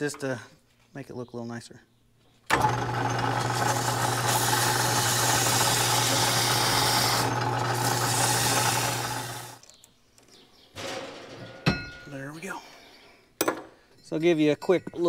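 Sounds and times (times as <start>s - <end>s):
metal lathe humming: 2.5s - 9.6s
sandpaper hissing on spinning metal: 3.7s - 9.6s.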